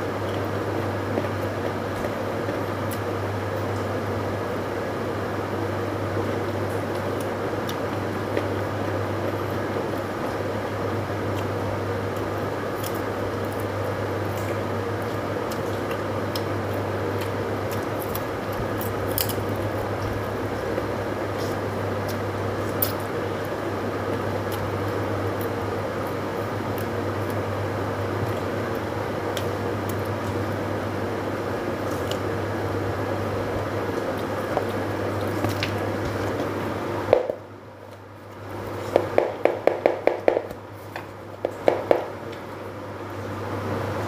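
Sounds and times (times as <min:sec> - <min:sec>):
wet squishing and chewing: 0:33.9 - 0:36.6.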